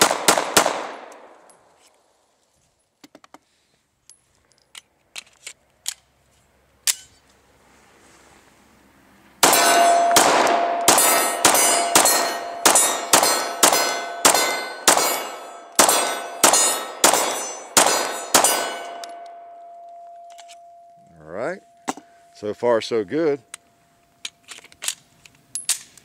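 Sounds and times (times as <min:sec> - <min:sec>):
pistol shots: 0:00.0 - 0:01.3, 0:09.4 - 0:19.2
steel targets clanging: 0:09.4 - 0:23.5.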